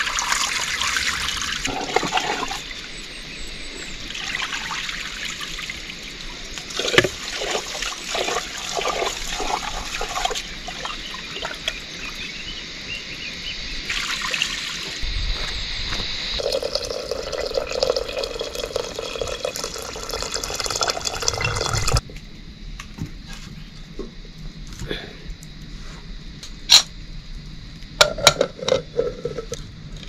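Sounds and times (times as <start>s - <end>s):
water pouring and trickling: 0.0s - 2.7s, 4.1s - 11.8s, 13.8s - 15.0s, 16.4s - 22.0s.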